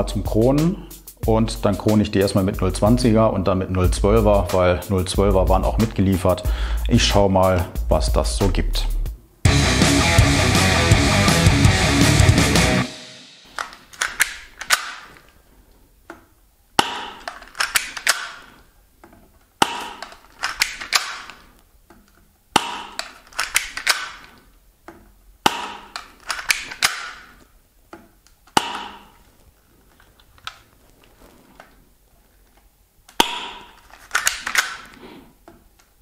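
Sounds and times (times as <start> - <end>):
loud guitar music: 9.4 - 13.3
pistol slide racking rasp: 13.5 - 15.2, 16.8 - 18.6, 19.6 - 21.5, 22.6 - 24.4, 25.5 - 27.4, 33.2 - 35.1
airsoft pistol shots: 16.8 - 18.5, 19.6 - 21.4, 22.6 - 24.3, 25.4 - 27.3, 28.6 - 29.1, 33.2 - 34.9.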